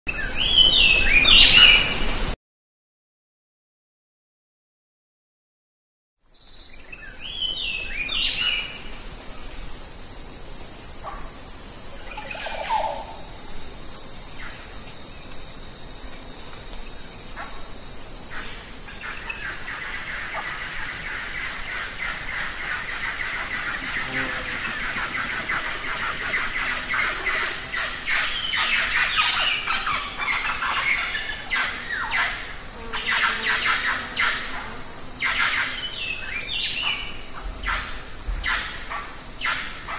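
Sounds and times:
birds chirping: 18.3s - 32.3s.

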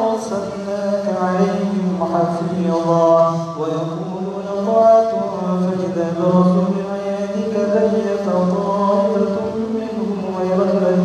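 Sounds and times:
man chanting into a microphone: 0.0s - 11.0s.

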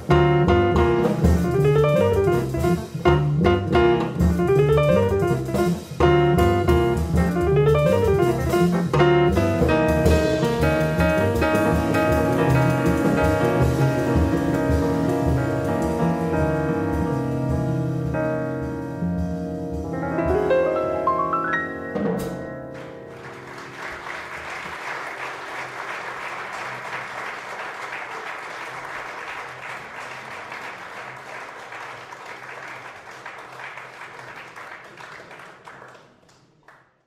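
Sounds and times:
jazz piano trio: 0.0s - 24.9s
audience applause: 22.7s - 36.8s.

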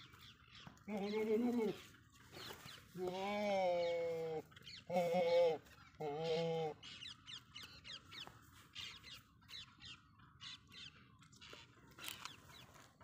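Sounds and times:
small birds chirping: 0.0s - 13.0s
goat bleating: 0.8s - 1.9s, 3.0s - 6.8s.

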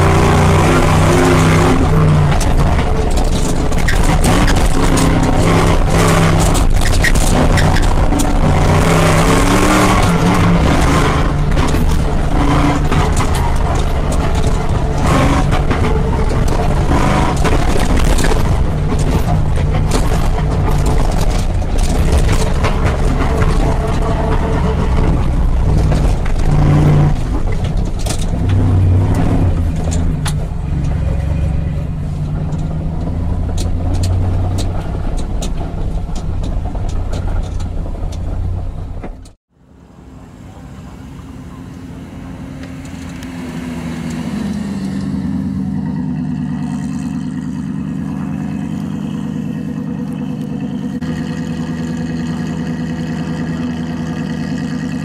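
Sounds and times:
knocks and rattles: 0.0s - 39.4s
rally car engine: 0.0s - 55.0s.

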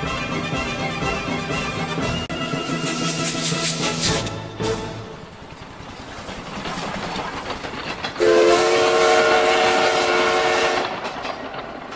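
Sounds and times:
train rumbling on rails: 0.0s - 11.9s
train horn long chord: 8.2s - 11.0s.

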